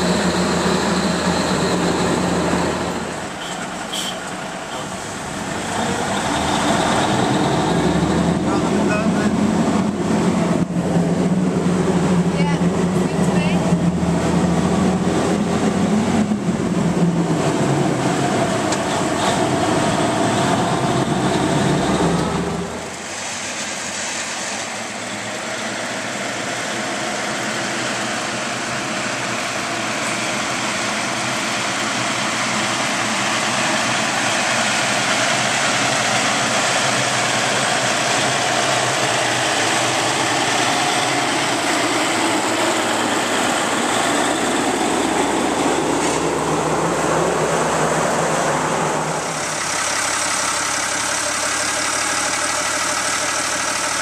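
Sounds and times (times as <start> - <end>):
heavy truck rumble approaching: 0.0 - 54.0.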